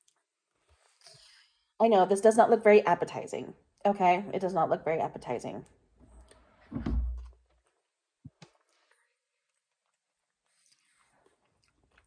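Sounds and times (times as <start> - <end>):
quiet chewing: 7.5 - 12.0.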